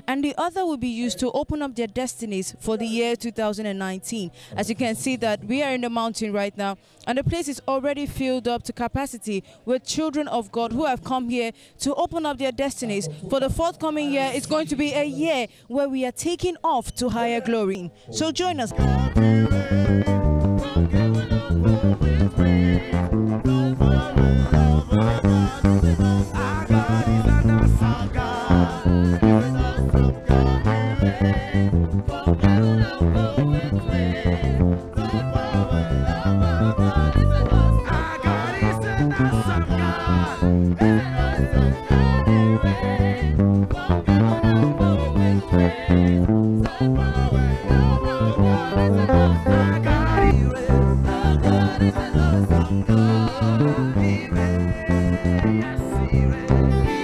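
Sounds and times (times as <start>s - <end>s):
band with guitars and singing: 18.7s - 57.0s.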